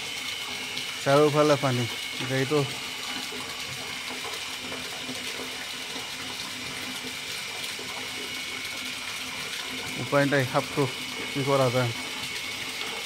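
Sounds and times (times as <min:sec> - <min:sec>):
water trickling: 0:00.0 - 0:13.0.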